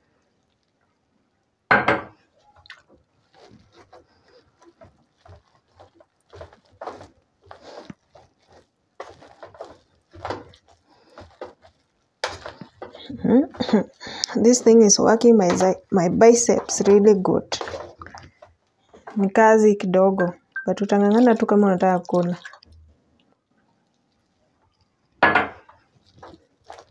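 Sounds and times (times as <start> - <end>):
potato masher squelching: 2.4 - 22.6, 25.8 - 26.9.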